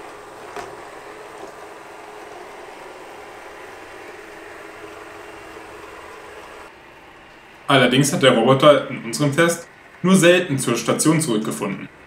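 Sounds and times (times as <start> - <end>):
robot vacuum humming: 0.0 - 12.0.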